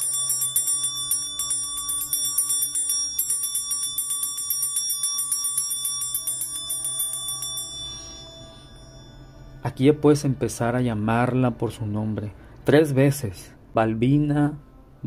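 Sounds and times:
hand bell ringing rapidly: 0.0s - 9.3s.

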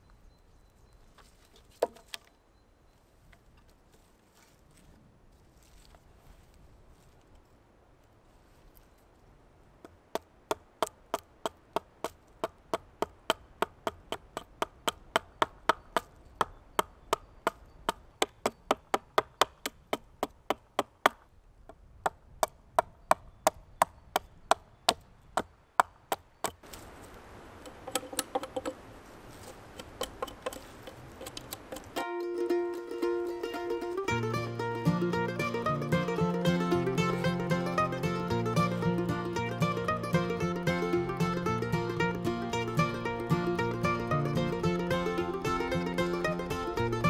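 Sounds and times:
hatchet chopping wood: 9.8s - 21.2s, 22.0s - 26.6s, 27.7s - 28.8s, 29.8s - 32.0s.

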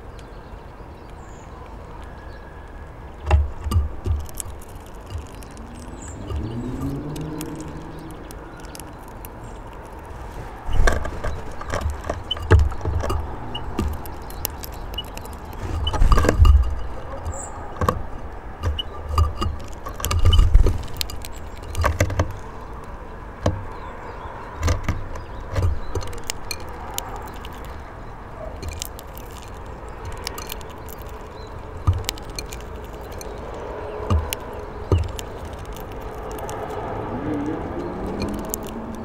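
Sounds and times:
background noise: 0.0s - 39.0s
birds pecking at feeder: 0.0s - 39.0s.

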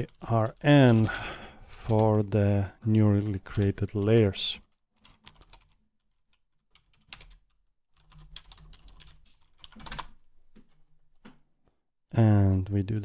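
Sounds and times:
typing on computer keyboard: 4.7s - 10.2s.

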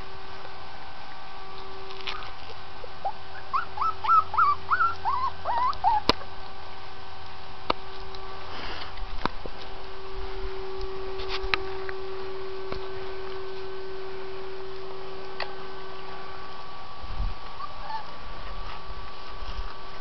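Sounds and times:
puppy yipping: 3.0s - 6.2s, 17.6s - 18.1s.

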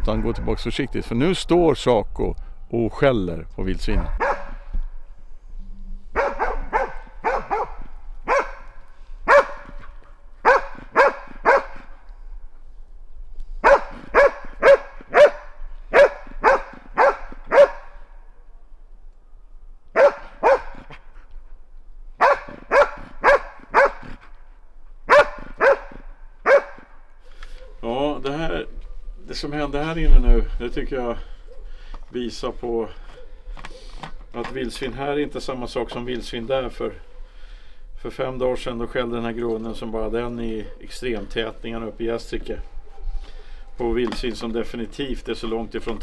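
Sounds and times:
dog barking: 4.2s - 4.6s, 6.2s - 9.8s, 10.4s - 11.9s, 13.6s - 18.0s, 20.0s - 20.9s, 22.2s - 24.1s, 25.1s - 26.9s, 27.5s - 27.8s, 31.5s - 31.8s, 33.0s - 33.9s, 40.6s - 41.0s, 42.6s - 43.8s.

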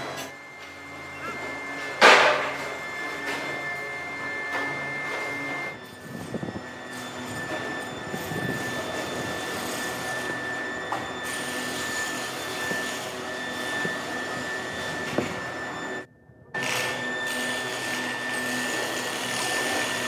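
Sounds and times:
factory machinery whine: 0.0s - 20.0s.

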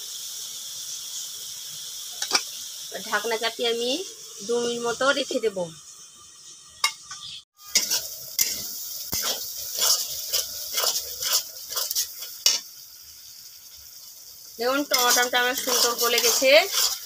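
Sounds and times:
masala sizzling in a pan: 0.0s - 17.0s
metal spatula scraping a pan: 2.2s - 2.4s, 6.8s - 12.7s, 14.6s - 17.0s.

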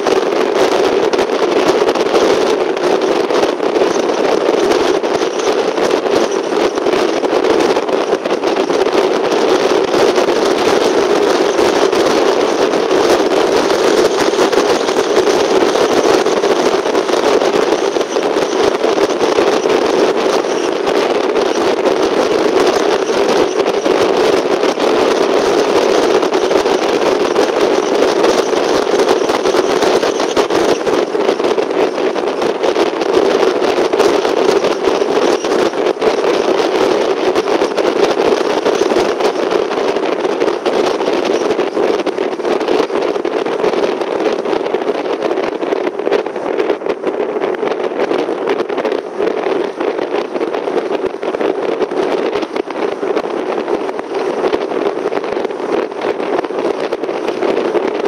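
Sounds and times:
car road and engine noise: 0.4s - 45.4s.

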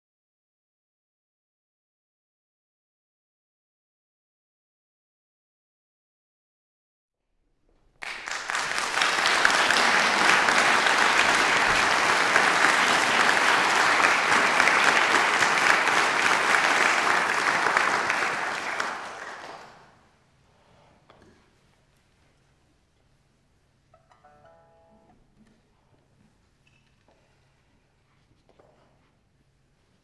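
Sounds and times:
audience applauding: 8.0s - 20.0s.

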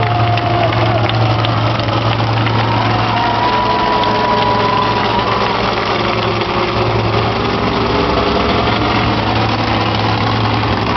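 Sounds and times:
truck engine running near idle: 0.0s - 10.9s.

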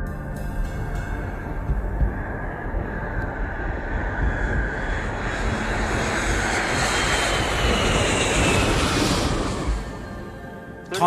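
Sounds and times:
jet engines at takeoff power: 0.0s - 11.0s
jet whine falling in pitch: 0.0s - 11.0s.

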